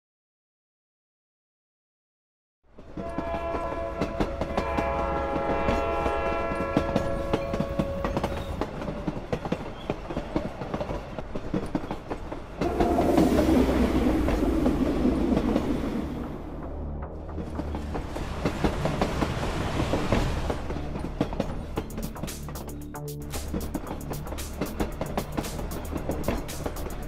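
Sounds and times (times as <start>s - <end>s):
train wheels clattering on rails: 2.7s - 16.4s, 17.4s - 27.0s
deep train rumble: 2.7s - 27.0s
train horn: 2.9s - 8.6s, 12.6s - 15.0s.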